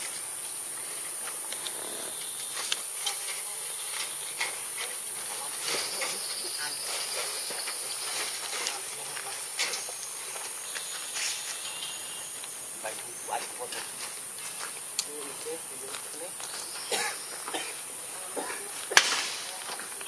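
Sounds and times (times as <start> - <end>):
high-pitched insect buzz: 0.0 - 20.0.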